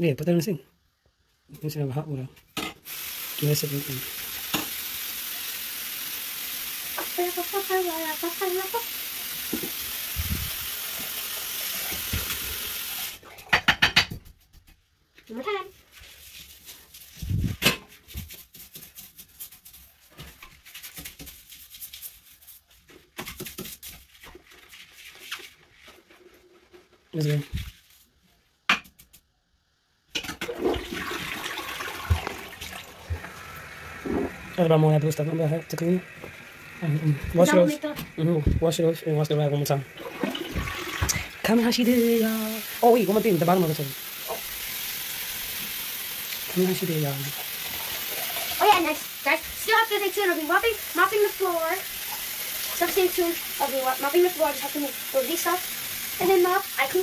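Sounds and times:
toilet flushing: 2.8 - 13.2, 30.4 - 57.0
sink tap running: 2.9 - 14.1, 30.2 - 57.0.

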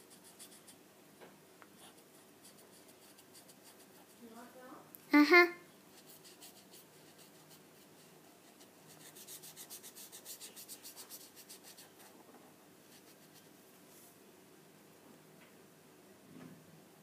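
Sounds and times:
marker scratching on paper: 0.0 - 0.8, 1.8 - 4.3, 5.9 - 12.2, 12.9 - 13.5.

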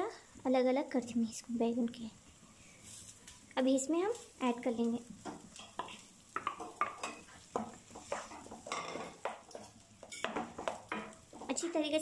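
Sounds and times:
spatula scraping and knocking pan: 4.1 - 11.9.

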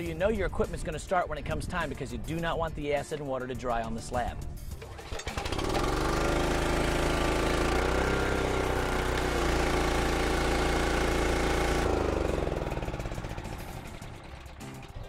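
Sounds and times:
small gasoline engine running: 4.8 - 15.0.

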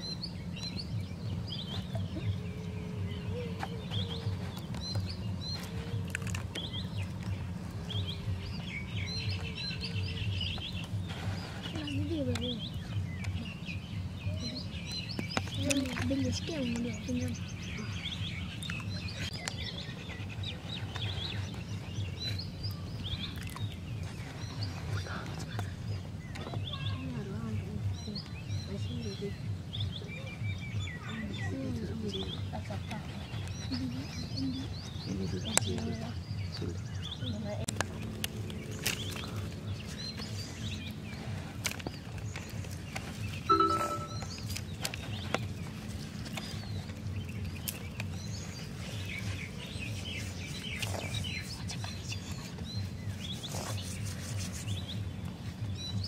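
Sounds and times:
small birds chirping: 0.0 - 56.0.

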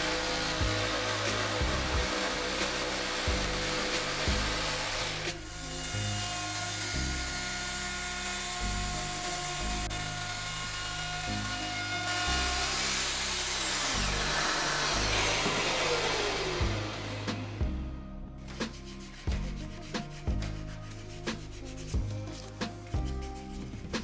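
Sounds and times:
jigsaw cutting wood: 0.0 - 17.6
plunge router whining: 0.0 - 17.6
background music with steady beat: 0.0 - 24.0.

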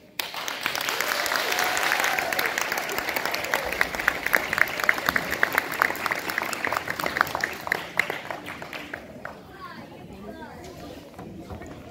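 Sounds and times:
audience clapping: 0.0 - 9.8.

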